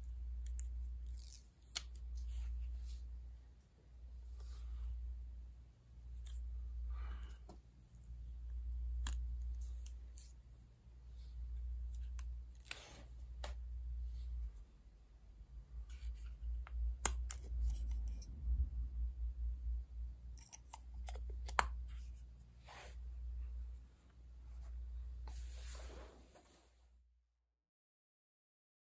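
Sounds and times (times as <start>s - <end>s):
steady low rumble: 13.2s - 25.2s
plastic clicks and scrapes: 15.9s - 18.3s
soft rustling: 21.9s - 26.8s.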